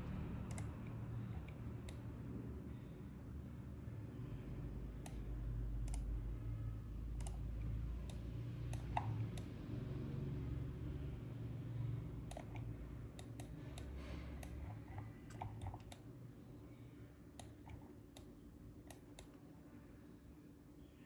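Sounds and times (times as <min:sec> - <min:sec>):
low steady hum: 0:00.0 - 0:21.0
computer mouse clicks: 0:00.5 - 0:02.0, 0:05.0 - 0:05.2, 0:05.8 - 0:06.1, 0:07.2 - 0:07.4, 0:08.0 - 0:09.6, 0:12.2 - 0:16.1, 0:17.4 - 0:19.4.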